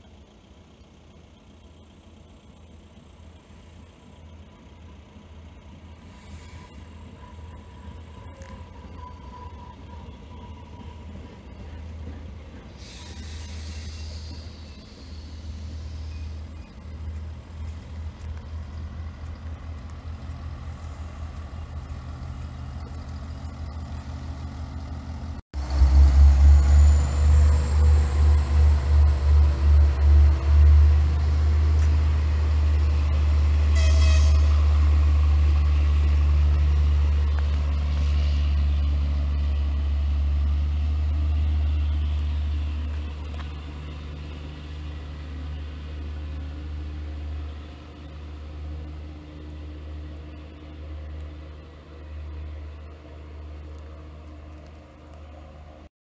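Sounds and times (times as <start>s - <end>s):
train rumbling: 0.0s - 55.9s
train horn toot: 33.7s - 34.6s.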